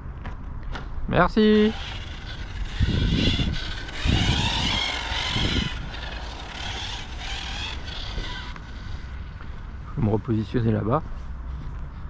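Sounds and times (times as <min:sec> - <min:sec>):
low rumbles: 0:01.1 - 0:10.3
electric motor whine: 0:01.4 - 0:09.8.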